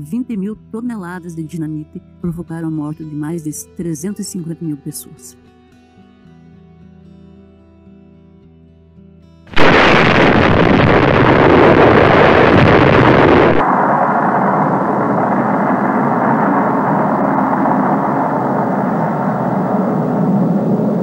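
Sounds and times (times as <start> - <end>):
explosion blast and rumble: 9.5 - 21.0
dull low rumble: 9.6 - 21.0.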